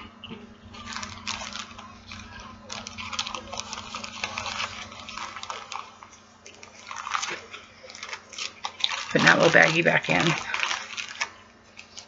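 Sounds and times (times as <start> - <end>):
plastic bag crinkling: 0.6 - 12.0.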